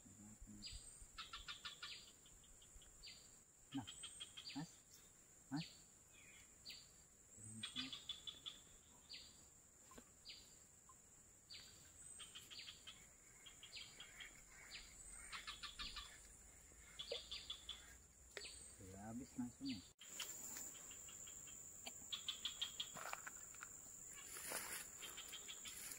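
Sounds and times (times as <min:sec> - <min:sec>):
high insect drone: 0:00.0 - 0:25.9
bird chattering trills: 0:00.6 - 0:04.9, 0:07.4 - 0:09.3, 0:11.5 - 0:23.2, 0:24.1 - 0:25.9.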